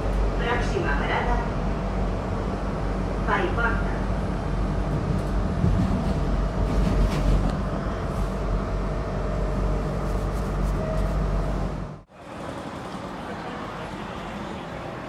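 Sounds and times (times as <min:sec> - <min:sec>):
train wheels rumbling on rails: 0:04.0 - 0:15.0.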